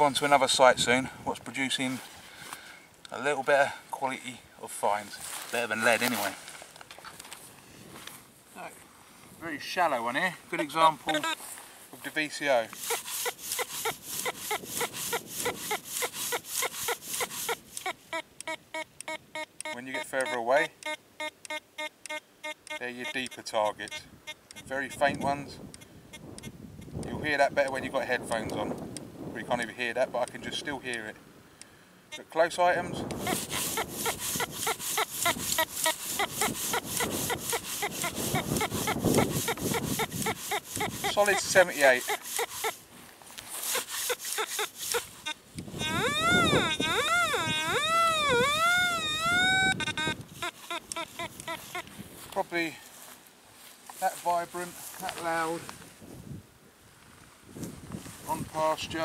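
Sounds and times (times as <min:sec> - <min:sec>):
metal detector beeping: 0:10.6 - 0:11.4, 0:12.8 - 0:26.9, 0:32.1 - 0:42.8, 0:43.7 - 0:51.9
coil swishing through grass: 0:11.0 - 0:18.0, 0:33.1 - 0:45.8.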